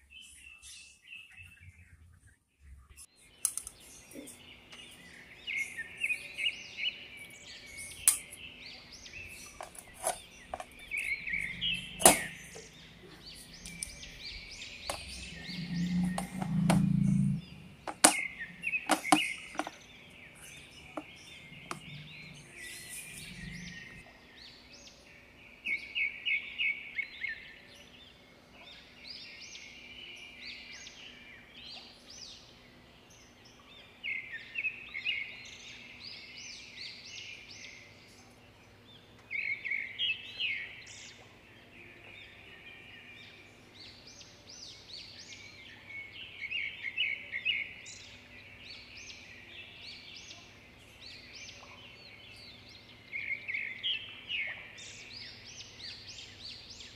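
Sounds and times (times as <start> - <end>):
faint low hum: 0.0 - 56.9
bird chirping in trilled bursts: 3.8 - 24.0.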